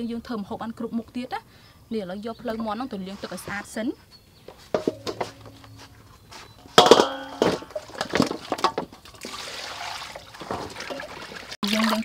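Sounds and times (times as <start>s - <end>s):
metal bowl clanging: 4.7s - 9.4s, 10.0s - 11.6s
tongs knocking on steel bowls: 4.8s - 7.8s.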